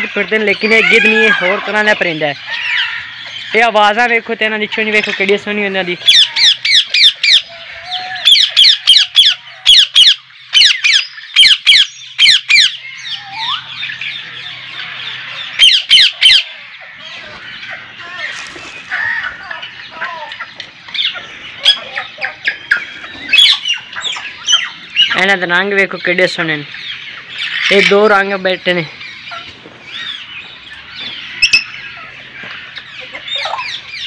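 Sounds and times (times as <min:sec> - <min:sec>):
birds screeching: 0:00.0 - 0:34.0
chatter of many birds: 0:00.0 - 0:34.0.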